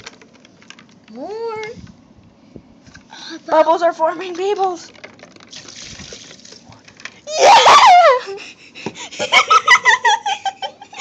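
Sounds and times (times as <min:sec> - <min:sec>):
child squealing: 0:07.3 - 0:08.2
children giggling: 0:07.4 - 0:11.0.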